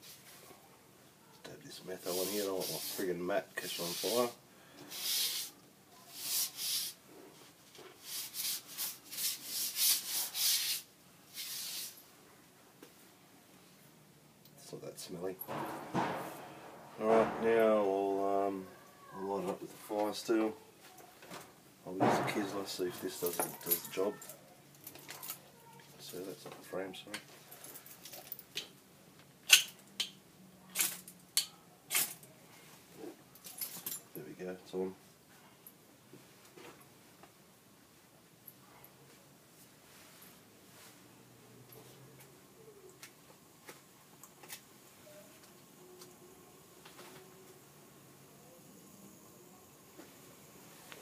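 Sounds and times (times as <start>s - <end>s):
cloth scrubbing tabletop mat: 2.0s - 4.2s, 4.9s - 7.0s, 8.0s - 12.0s
fire steel scraping: 15.4s - 18.0s.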